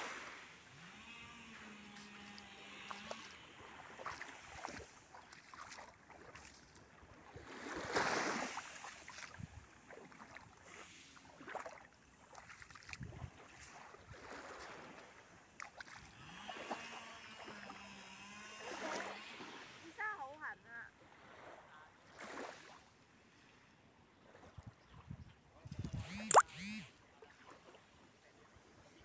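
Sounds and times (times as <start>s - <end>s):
small waves lapping on sand: 0.0s - 29.0s.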